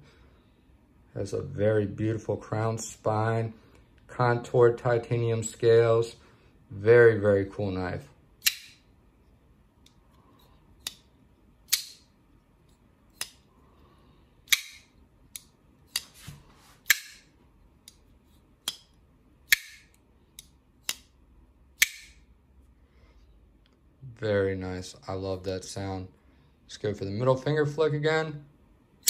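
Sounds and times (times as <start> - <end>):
folding knife clicking closed: 11.7 - 12.0, 14.5 - 16.0
folding knife snapping open: 11.7 - 12.0, 14.5 - 16.1.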